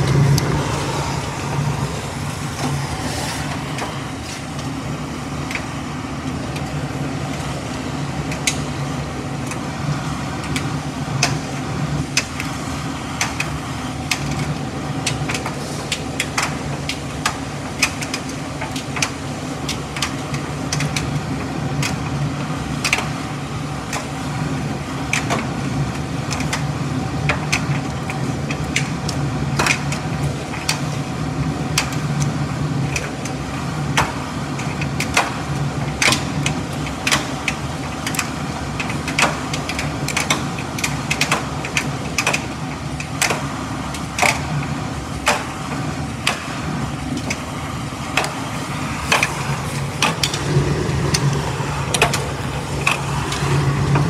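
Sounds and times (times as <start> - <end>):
tumble dryer humming: 0.0 - 15.0, 40.0 - 54.0.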